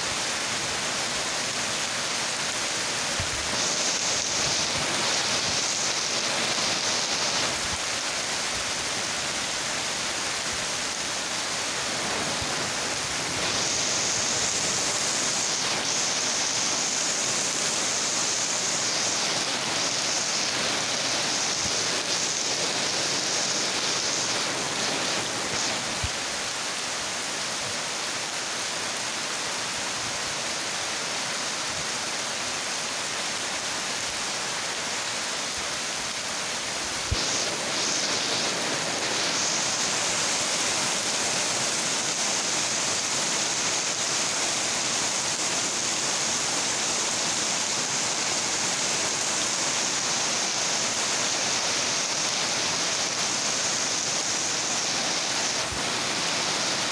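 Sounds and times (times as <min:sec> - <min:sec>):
heavy rain on metal roofs: 0:00.0 - 0:56.9.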